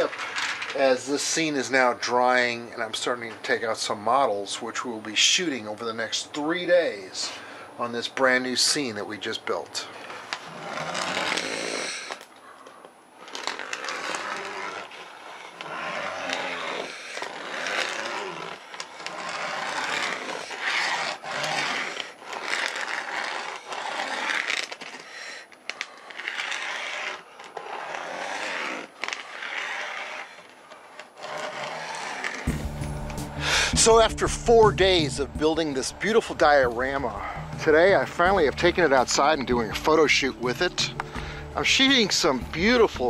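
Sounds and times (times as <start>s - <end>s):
model train cars rolling on rails: 0.0s - 12.3s, 13.2s - 32.5s.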